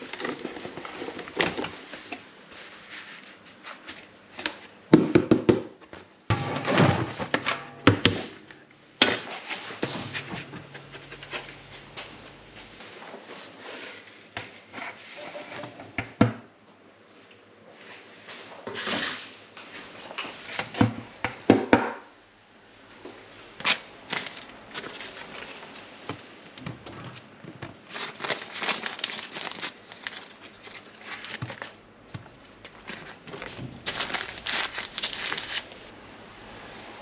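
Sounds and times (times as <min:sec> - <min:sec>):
rustling and crinkling: 0:00.0 - 0:04.8, 0:05.9 - 0:15.2, 0:22.8 - 0:35.9.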